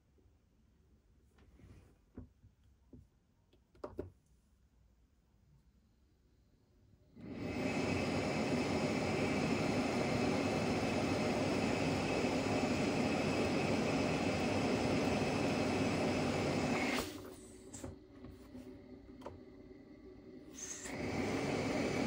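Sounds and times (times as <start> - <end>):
cpap machine blowing air: 7.1 - 22.0.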